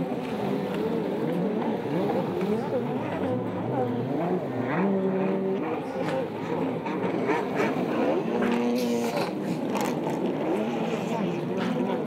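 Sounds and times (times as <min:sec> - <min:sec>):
jet ski engines revving: 0:00.0 - 0:12.0.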